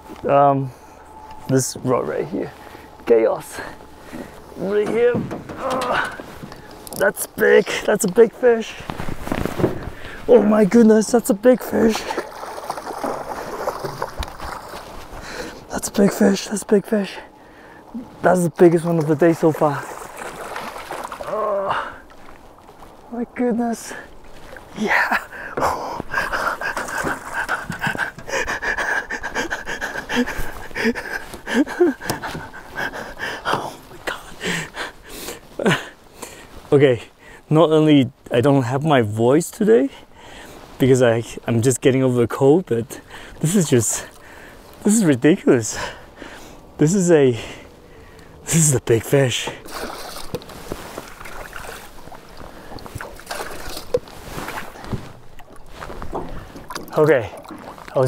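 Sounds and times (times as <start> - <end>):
water splashing: 11.4 - 15.2, 18.8 - 23.1, 23.9 - 28.6, 49.5 - 58.0
man panting: 25.3 - 33.6.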